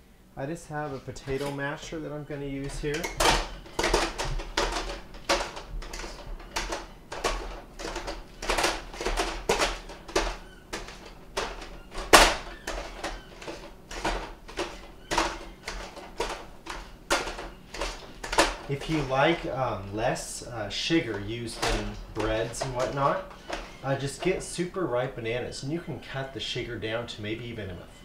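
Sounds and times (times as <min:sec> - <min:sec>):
potato masher clanking in metal bowl: 0:00.9 - 0:27.2.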